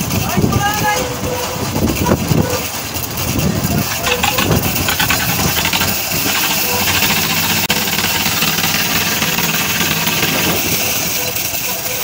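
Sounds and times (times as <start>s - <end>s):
concrete mixer engine running: 2.9s - 12.0s.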